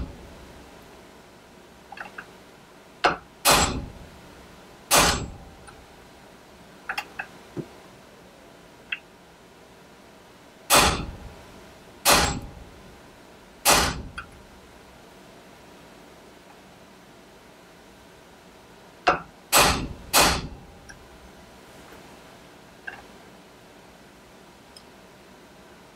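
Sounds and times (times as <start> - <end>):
hammer striking metal punch: 3.0 - 4.0, 4.9 - 5.8, 10.7 - 11.3, 12.0 - 12.8, 13.6 - 14.3, 19.1 - 20.7.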